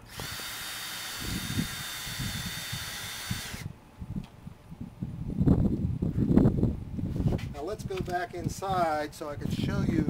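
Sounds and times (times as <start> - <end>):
cordless drill motor whine: 0.0 - 3.7.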